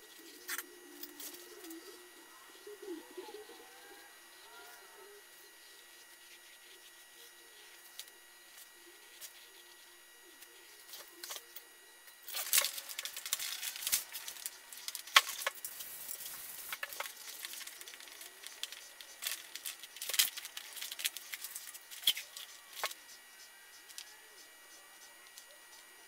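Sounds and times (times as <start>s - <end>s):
plastic film crinkling: 12.2s - 23.0s.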